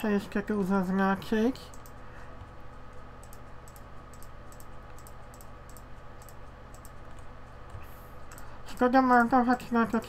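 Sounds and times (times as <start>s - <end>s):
low electrical hum: 0.0s - 10.0s
computer mouse clicking: 1.7s - 9.4s.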